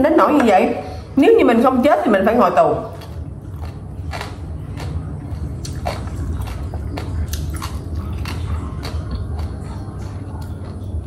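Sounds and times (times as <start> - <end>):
steady low hum: 0.0 - 11.0
woman chewing food: 2.8 - 11.0.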